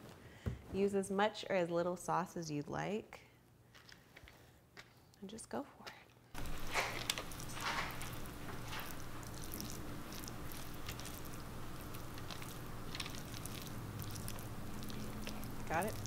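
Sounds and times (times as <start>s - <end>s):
basting brush wet strokes: 6.4s - 16.0s
steady low hum: 6.4s - 16.0s.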